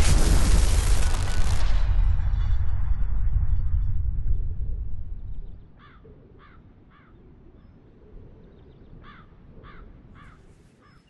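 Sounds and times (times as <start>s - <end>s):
low steady rumble: 0.0s - 5.8s
crow cawing: 5.8s - 7.2s, 9.0s - 10.5s.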